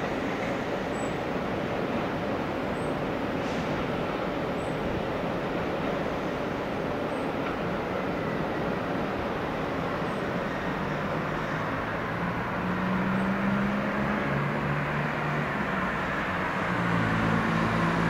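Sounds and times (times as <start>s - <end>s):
railway and city traffic rumble: 0.0s - 18.0s
low engine hum: 6.6s - 18.0s.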